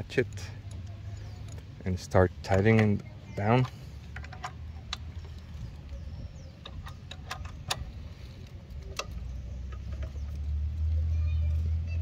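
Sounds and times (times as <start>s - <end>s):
socket ratchet clicking: 6.6s - 7.9s.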